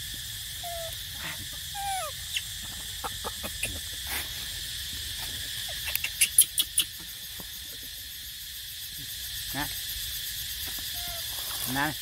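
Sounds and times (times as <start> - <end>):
insect drone: 0.0 - 12.0
baby monkey crying: 1.7 - 3.9, 5.7 - 7.0.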